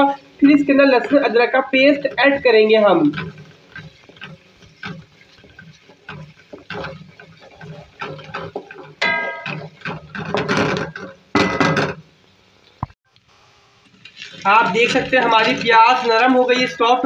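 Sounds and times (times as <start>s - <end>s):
wooden spatula scraping a pan: 0.0s - 12.0s, 13.8s - 17.0s
onions frying in hot oil: 0.0s - 17.0s.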